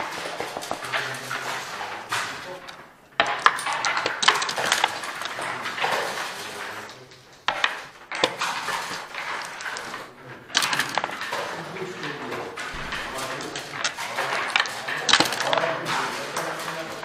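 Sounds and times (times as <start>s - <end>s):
dice and checkers clattering: 0.0s - 17.0s.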